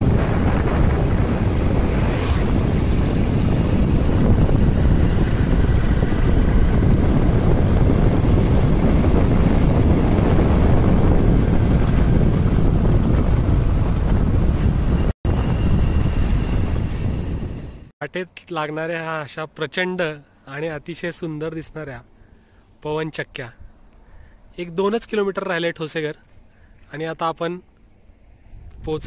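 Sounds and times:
wind rushing over microphone: 0.0s - 17.9s, 28.0s - 29.0s.

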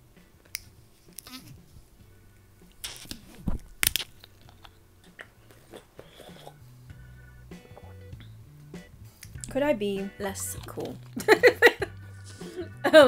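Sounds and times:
plastic bottle cap seal cracking: 2.7s - 4.8s.

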